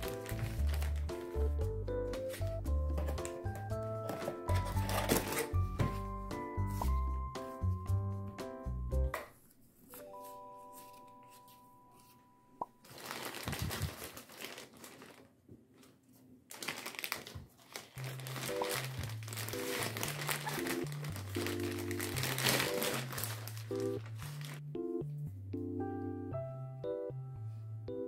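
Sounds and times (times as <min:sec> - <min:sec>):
plastic bag crinkling: 0:00.0 - 0:01.5, 0:03.2 - 0:05.5, 0:12.8 - 0:15.9, 0:16.5 - 0:24.6
light background music: 0:00.0 - 0:09.2, 0:09.9 - 0:12.6, 0:18.0 - 0:28.0.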